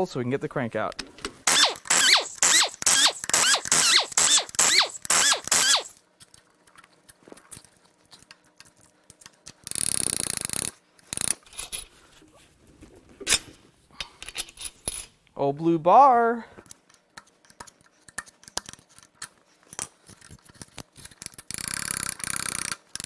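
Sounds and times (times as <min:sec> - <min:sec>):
tool buzzing whir: 0:01.4 - 0:06.0
ratchet strokes squeaking: 0:01.5 - 0:06.0, 0:21.5 - 0:23.0.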